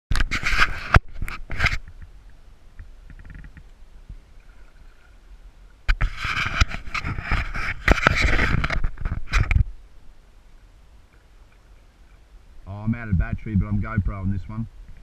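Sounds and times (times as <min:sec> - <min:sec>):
water splashing at kayak: 0:04.1 - 0:08.6.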